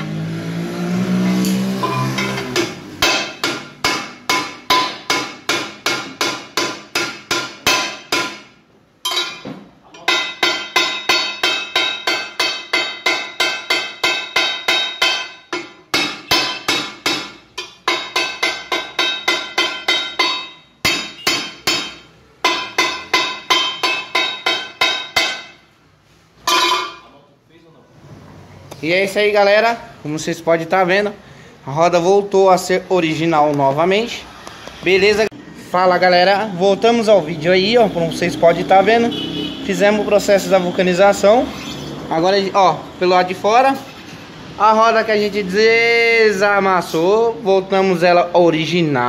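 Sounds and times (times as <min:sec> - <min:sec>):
hammer ringing on steel wheel rim: 0:01.8 - 0:25.7, 0:26.5 - 0:27.1.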